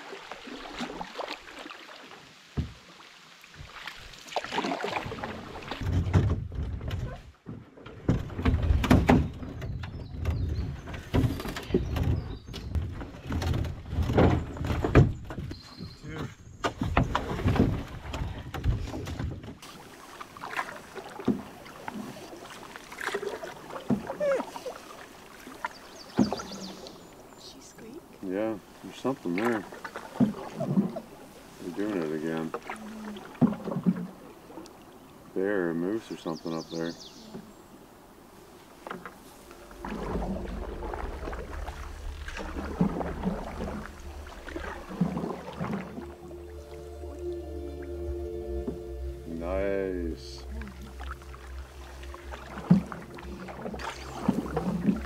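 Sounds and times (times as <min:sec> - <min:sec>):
paddle strokes in water: 0:00.0 - 0:47.8, 0:48.6 - 0:55.0
paddle knocking against canoe: 0:04.4 - 0:27.3, 0:29.2 - 0:35.1, 0:38.7 - 0:46.3, 0:50.6 - 0:55.0
low rumble: 0:39.5 - 0:55.0.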